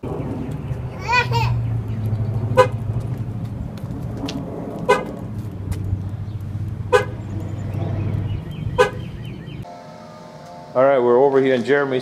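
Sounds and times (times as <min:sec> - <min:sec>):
truck horn chirps: 0:02.6 - 0:02.8, 0:04.9 - 0:05.1, 0:06.9 - 0:07.3, 0:08.7 - 0:10.8.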